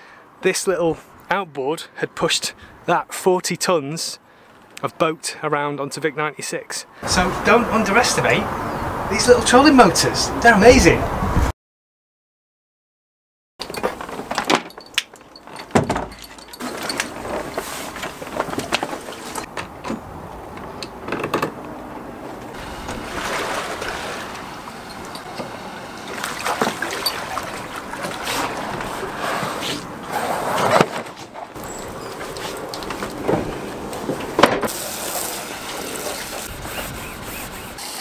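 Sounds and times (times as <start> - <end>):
outdoor background noise: 0.0 - 11.5, 13.6 - 38.0
dinghy handling knocks and rubbing: 13.6 - 20.0
footsteps on wooden pontoon: 30.8 - 34.5.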